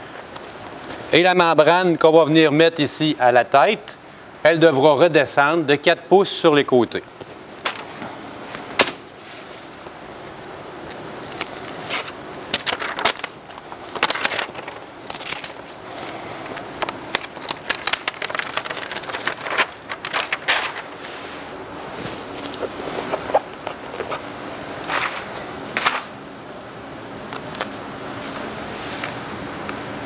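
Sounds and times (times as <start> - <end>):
plastic film crackling and rustling: 7.3 - 26.0.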